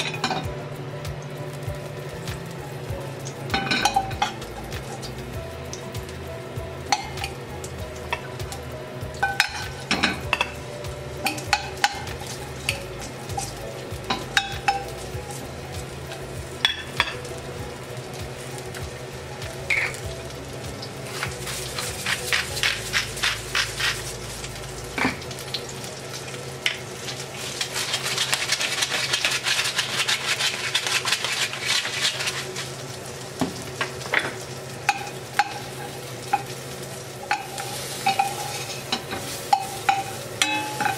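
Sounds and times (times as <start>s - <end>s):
food sizzling in a pan: 0.0s - 40.9s
metal tongs clinking against pan: 11.2s - 13.5s, 37.3s - 40.9s.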